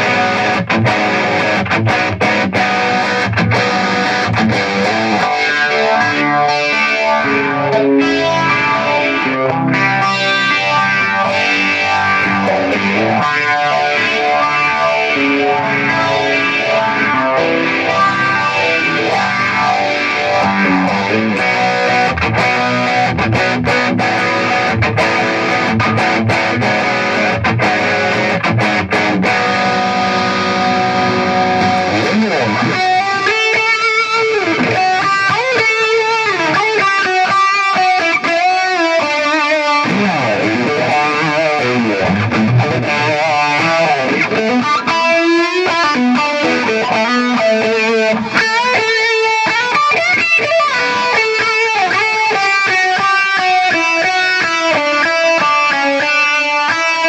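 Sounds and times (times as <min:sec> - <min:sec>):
electric guitar chords strummed: 0:00.0 - 0:57.0
electric guitar lead lines: 0:00.0 - 0:57.0.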